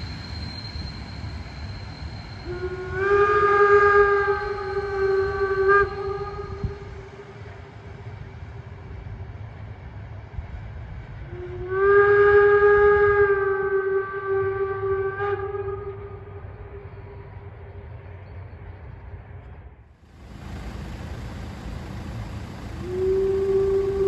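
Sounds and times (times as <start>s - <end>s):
running train rumble: 0.0s - 24.0s
steam whistle blasts: 1.7s - 7.3s, 11.3s - 16.8s, 20.7s - 24.0s.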